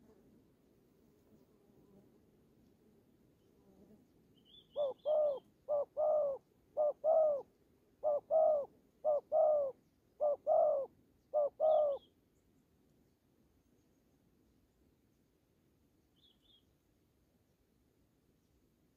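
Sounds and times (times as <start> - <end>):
small bird chirping: 4.3 - 7.4, 8.0 - 14.3, 16.0 - 16.8
dove cooing: 4.7 - 12.1.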